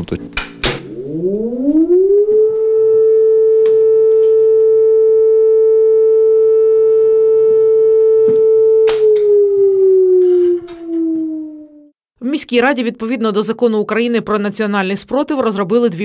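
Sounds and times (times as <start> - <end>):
warning siren wailing: 0.7 - 12.0
siren switch click: 3.5 - 4.8, 7.9 - 11.8.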